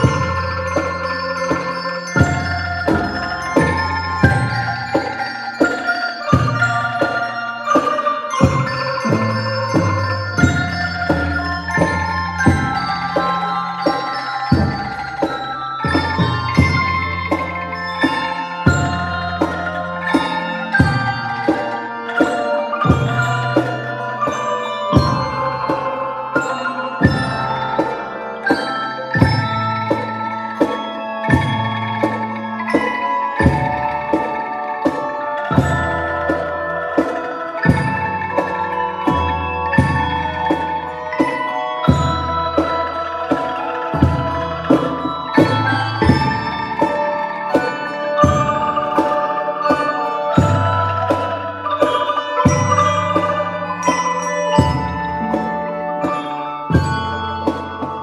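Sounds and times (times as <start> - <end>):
marimbas and xylophones playing: 0.0 - 58.0.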